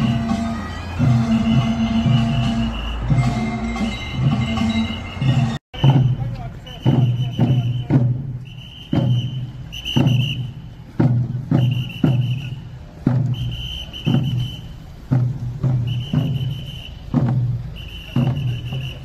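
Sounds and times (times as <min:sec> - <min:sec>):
high held wind note: 0:00.0 - 0:05.6
barrel drums beating: 0:00.0 - 0:19.0.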